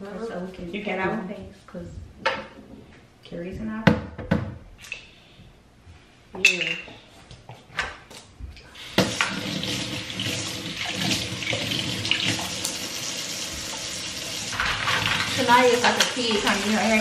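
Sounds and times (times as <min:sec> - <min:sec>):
faucet water running into sink: 0:08.7 - 0:17.0.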